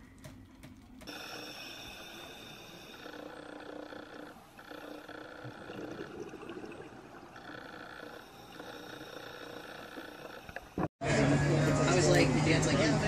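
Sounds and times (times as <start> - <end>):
steady underwater tones: 1.0 - 10.9.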